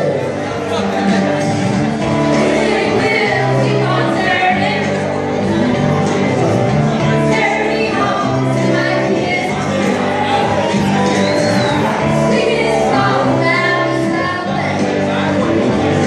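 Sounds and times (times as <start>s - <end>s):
amplified backing track: 0.0s - 16.0s
women singing into microphones: 2.4s - 5.5s, 7.0s - 10.6s, 12.0s - 15.7s.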